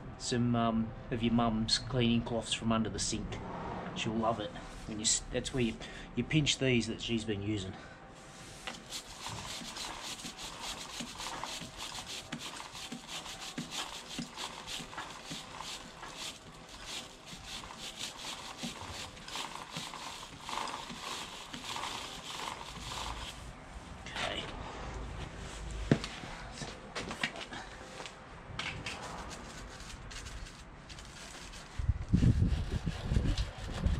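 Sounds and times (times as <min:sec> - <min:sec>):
brush scrubbing a chain: 0:08.4 - 0:23.5, 0:29.0 - 0:33.9.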